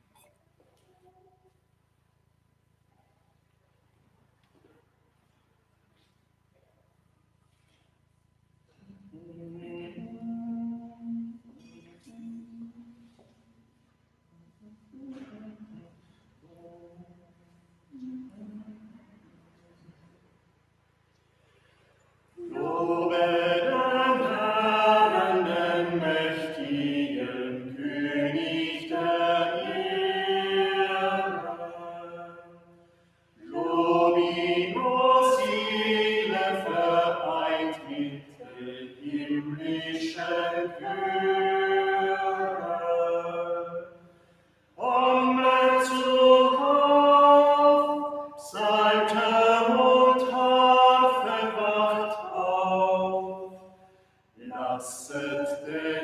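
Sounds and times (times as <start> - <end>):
group singing a hymn: 9.0 - 13.2, 22.4 - 56.0.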